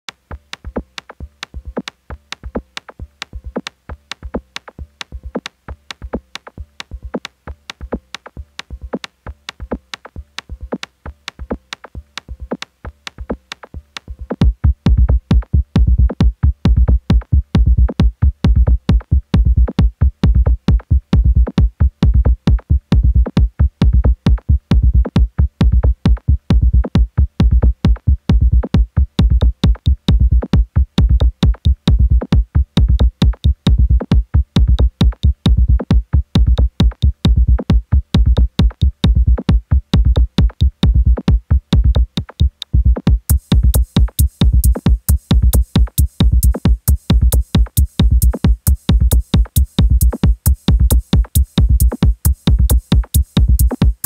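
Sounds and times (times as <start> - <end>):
sharp ticking percussion: 0.1 - 54.0
heavy kick drum: 14.3 - 54.0.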